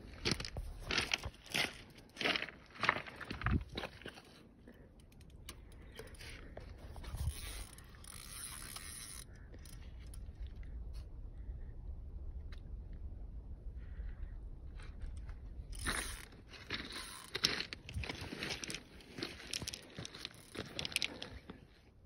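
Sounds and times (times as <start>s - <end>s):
footsteps crunching on pebbles: 0.0s - 4.4s, 14.8s - 21.6s
faint low rumble: 4.8s - 19.5s.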